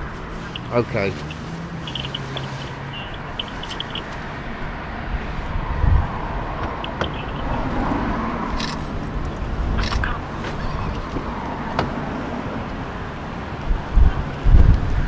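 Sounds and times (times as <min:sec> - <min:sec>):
road traffic noise: 0:00.0 - 0:15.0
short bird chirps: 0:00.4 - 0:04.1.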